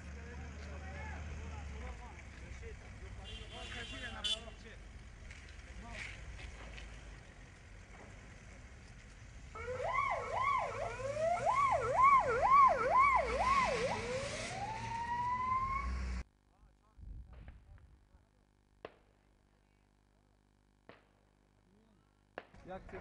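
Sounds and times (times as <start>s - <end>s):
low traffic rumble: 0.0s - 23.0s
siren wailing: 9.6s - 16.2s.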